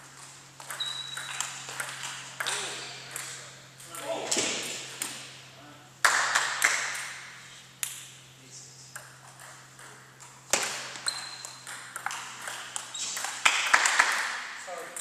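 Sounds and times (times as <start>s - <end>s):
table tennis ball hits: 0.6s - 3.4s, 9.0s - 15.0s.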